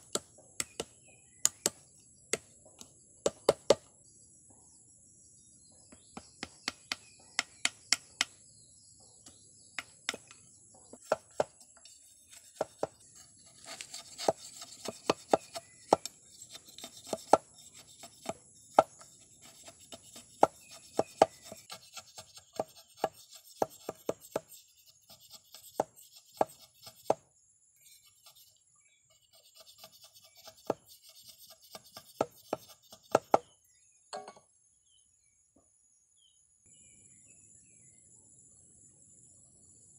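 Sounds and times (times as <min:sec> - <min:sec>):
blade scraping wood: 0:11.0 - 0:27.2, 0:27.8 - 0:33.4
machete knocking on wood: 0:34.2 - 0:34.4.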